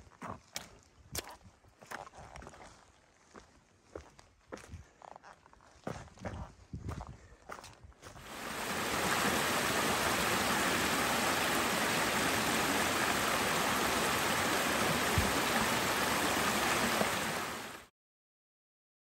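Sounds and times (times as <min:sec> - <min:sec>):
stream rushing and splashing: 0:08.2 - 0:17.9.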